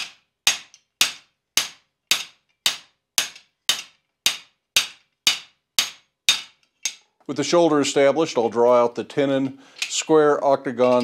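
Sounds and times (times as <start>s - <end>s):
hammer striking metal: 0.0s - 7.1s.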